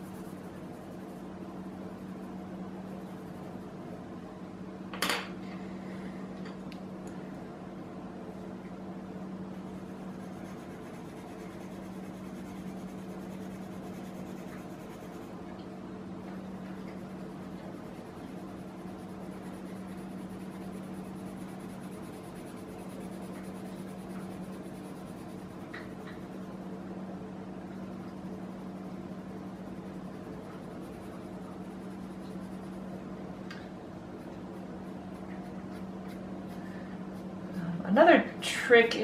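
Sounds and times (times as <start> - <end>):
pencil scratching on paper: 0.0 - 4.0, 9.5 - 15.3, 16.6 - 26.7, 28.2 - 33.0, 34.2 - 37.3
steady low hum: 0.0 - 39.0.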